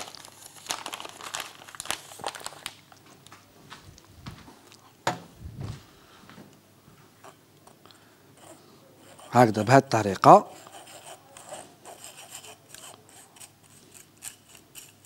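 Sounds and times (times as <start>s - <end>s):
paper bag crinkling: 0.0s - 3.0s.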